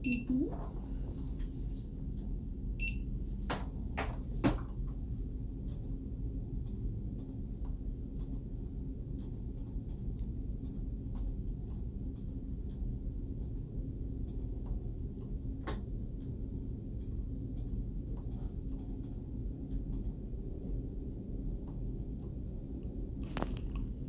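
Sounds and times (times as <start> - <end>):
low room hum: 0.0 - 24.0.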